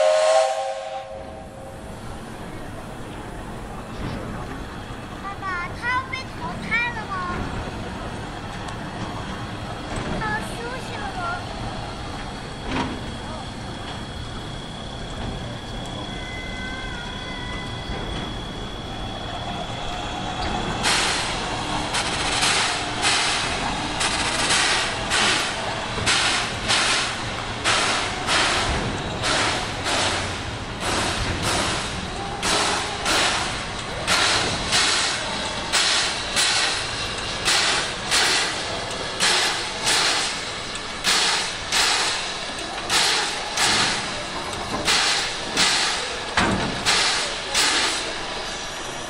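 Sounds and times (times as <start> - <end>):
steam locomotive hissing steam: 0.0 - 5.4, 10.2 - 49.0.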